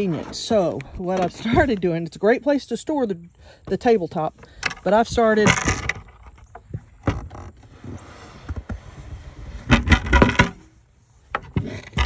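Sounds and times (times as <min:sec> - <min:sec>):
tabletop scraping on carpet: 0:07.5 - 0:12.0.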